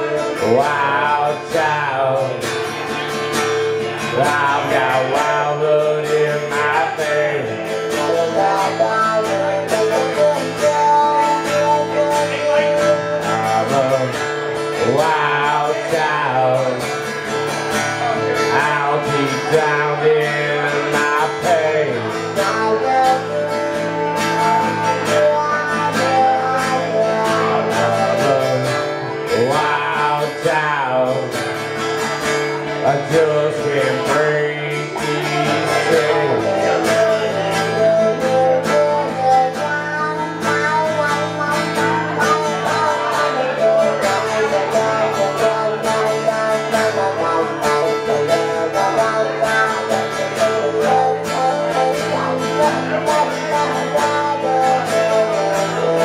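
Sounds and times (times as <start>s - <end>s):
acoustic guitars strummed: 0.0s - 56.0s
man singing: 0.0s - 56.0s.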